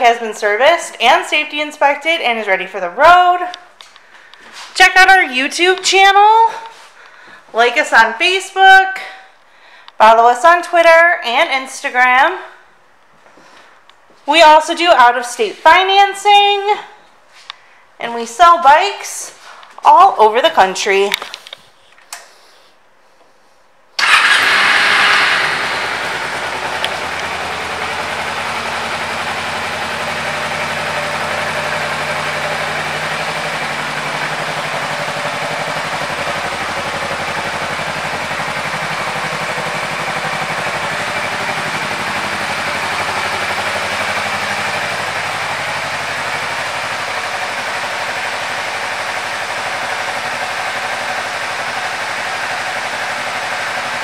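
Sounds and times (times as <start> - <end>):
motorcycle engine starting and idling: 24.0 - 54.0.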